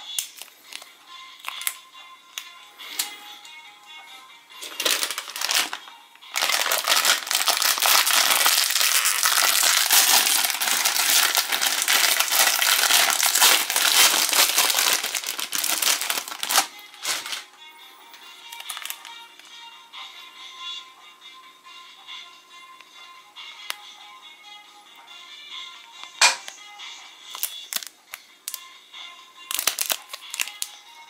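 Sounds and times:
plastic wrapper tearing and crinkling: 0.0s - 1.8s, 4.6s - 17.4s, 18.5s - 19.2s, 27.3s - 28.6s, 29.5s - 30.8s.

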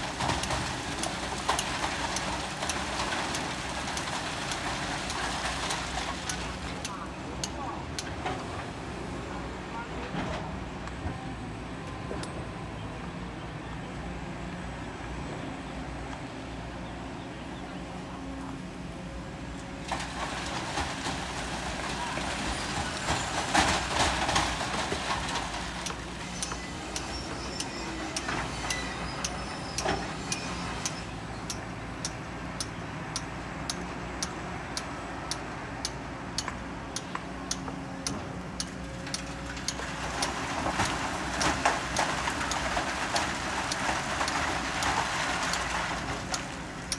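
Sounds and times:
bucket scraping sand and stones: 20.0s - 30.8s, 39.9s - 46.8s.

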